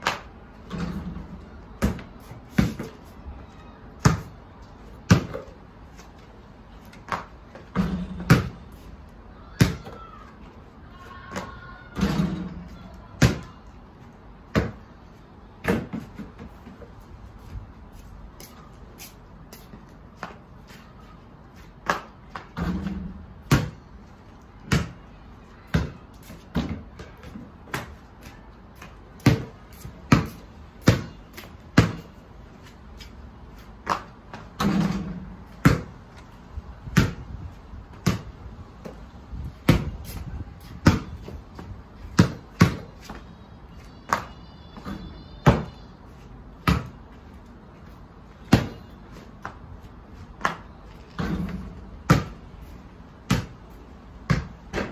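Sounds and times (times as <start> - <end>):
basketball bouncing on paving: 1.8 - 3.0, 4.0 - 4.4, 5.0 - 5.6, 7.0 - 8.6, 9.5 - 10.1, 14.5 - 14.9, 15.6 - 16.5, 21.8 - 23.9, 24.6 - 25.0, 25.7 - 28.0, 28.8 - 32.2, 33.8 - 36.3, 36.9 - 43.3, 43.9 - 45.8, 46.6 - 47.2, 48.4 - 49.6, 50.4 - 52.5, 53.2 - 54.9.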